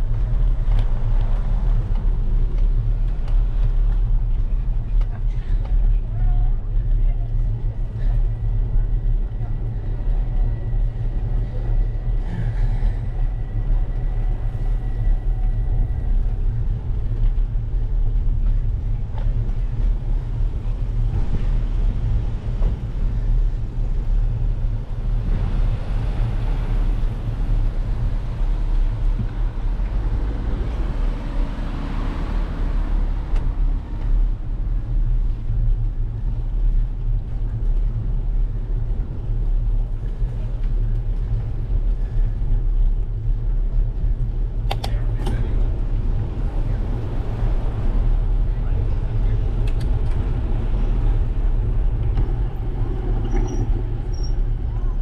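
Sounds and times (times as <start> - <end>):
road noise: 0.0 - 55.0
wind rumble: 0.0 - 55.0
car passing: 25.1 - 34.7.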